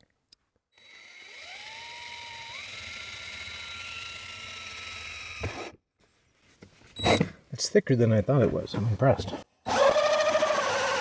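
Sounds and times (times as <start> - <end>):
drill motor whining: 0.7 - 5.8, 9.7 - 11.0
hole saw cutting plastic: 9.7 - 11.0.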